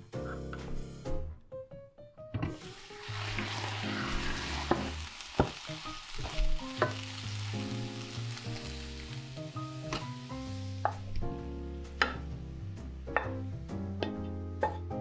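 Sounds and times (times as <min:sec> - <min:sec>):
soft background music: 0:00.0 - 0:15.0
vegetables sizzling in a frying pan: 0:02.6 - 0:11.3.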